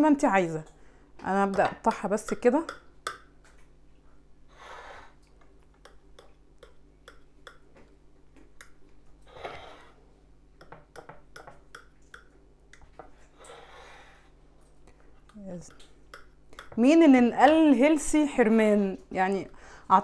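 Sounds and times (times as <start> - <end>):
knife tapping on board: 10.6 - 12.3.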